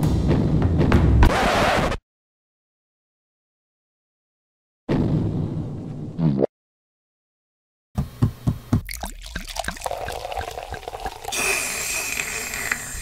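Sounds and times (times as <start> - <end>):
coffee pouring into a mug: 8.8 - 13.0.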